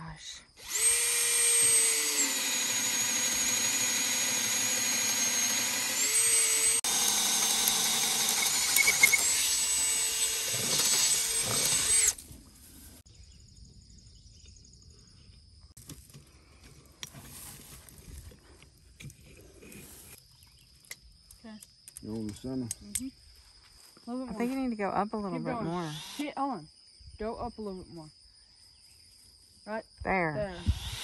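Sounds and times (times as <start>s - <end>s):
cordless drill motor whining: 0.6s - 12.2s, 25.4s - 26.3s, 30.4s - 31.0s.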